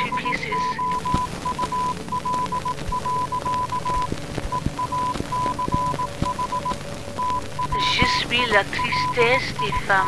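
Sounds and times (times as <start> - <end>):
morse code beeping: 0.0 - 8.2, 8.8 - 9.9
crackling clicks: 0.0 - 10.0
radio hiss: 0.0 - 10.0.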